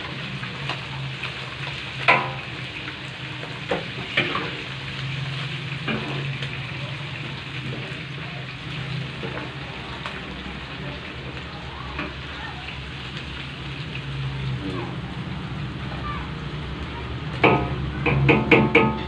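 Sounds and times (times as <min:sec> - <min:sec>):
hot oil sizzling in a wok: 0:00.0 - 0:19.0
metal utensils clinking on wok: 0:02.0 - 0:02.5.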